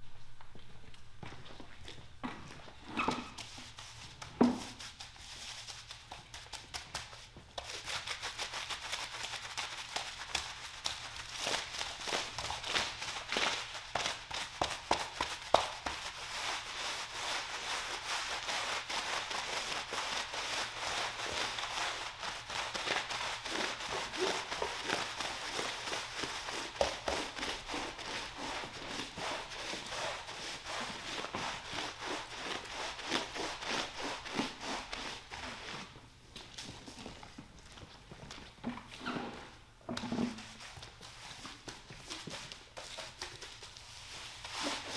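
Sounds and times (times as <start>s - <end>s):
scrub brushes swishing on rug: 40.3s - 44.9s.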